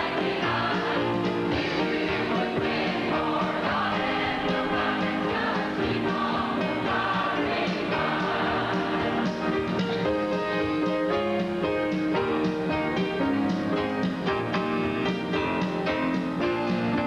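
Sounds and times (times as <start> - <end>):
choir singing gospel song: 0.0 - 9.9.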